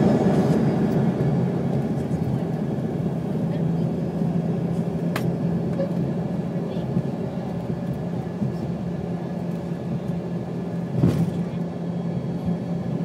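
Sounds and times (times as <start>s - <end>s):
aircraft cabin rumble: 0.0s - 13.0s
jet engine drone: 0.0s - 13.0s.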